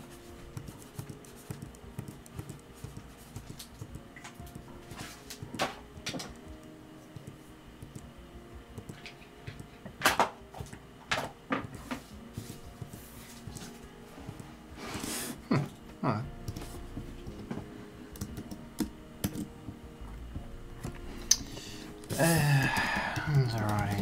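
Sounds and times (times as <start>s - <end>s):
clicks and knocks at computer desk: 1.0s - 6.5s, 8.8s - 12.1s.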